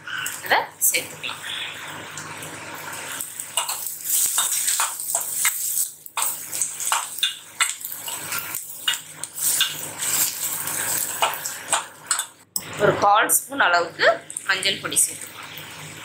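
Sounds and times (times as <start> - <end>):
oil sizzling: 0.0 - 16.0
metal spatula scraping pan: 3.6 - 12.3.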